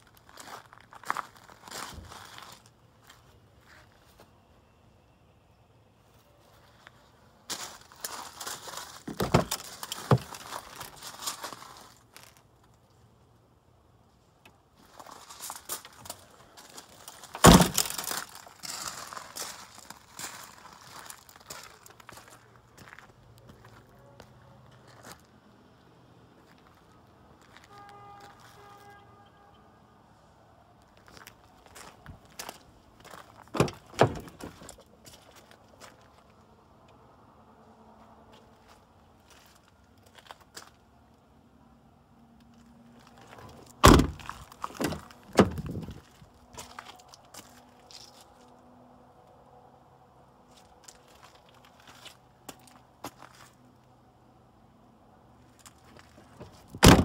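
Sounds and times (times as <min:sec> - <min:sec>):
liftgate unlatching clunks: 0:33.6 - 0:34.5, 0:43.8 - 0:44.2, 0:56.4 - 0:57.0
car door latch clacks: 0:43.8 - 0:44.2, 0:56.8 - 0:57.0
liftgate slamming shut: 0:43.8 - 0:44.2, 0:56.8 - 0:57.0.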